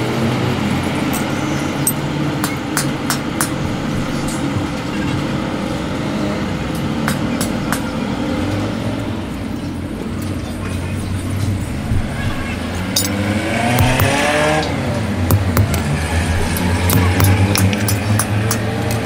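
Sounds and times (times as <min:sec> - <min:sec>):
low mechanical rumble: 0:08.1 - 0:19.0.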